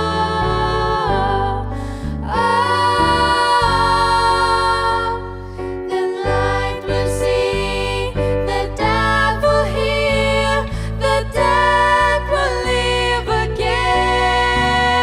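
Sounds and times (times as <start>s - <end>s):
women singing together: 0.0s - 15.0s.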